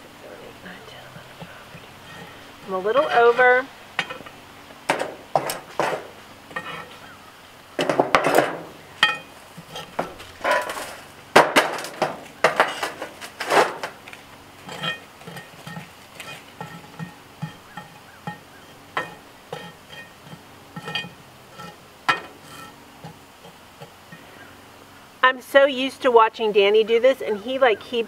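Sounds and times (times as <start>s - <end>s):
metal chimney knocked: 4.9s - 6.8s, 7.8s - 9.3s, 9.9s - 14.0s
metal tongs clinking and scraping: 5.8s - 7.2s, 14.6s - 24.2s.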